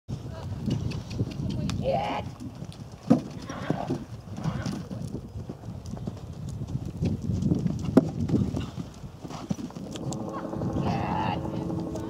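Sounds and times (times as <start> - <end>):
horse hoofbeats on sand: 0.1 - 12.0.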